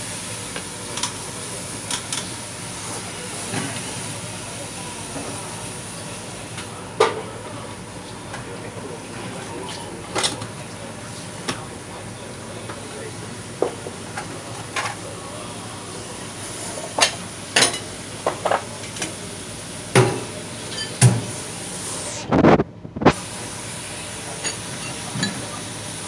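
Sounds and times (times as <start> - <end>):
dishes and utensils clinking: 20.1 - 21.2, 24.4 - 25.5.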